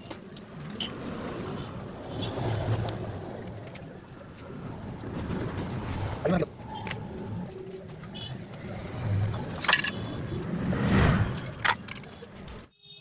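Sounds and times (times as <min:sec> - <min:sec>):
metal gears clinking: 0:09.4 - 0:10.1.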